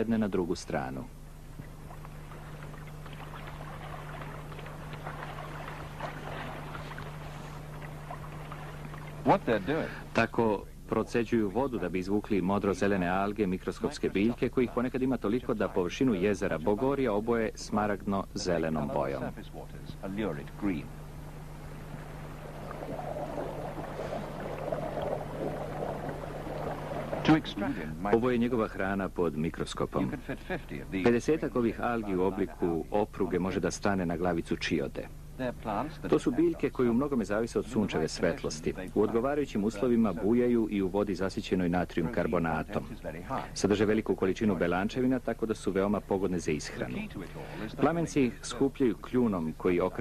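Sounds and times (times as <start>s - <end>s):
steady low hum: 0.0s - 50.0s
soft water splashes: 1.6s - 10.1s, 21.0s - 28.2s.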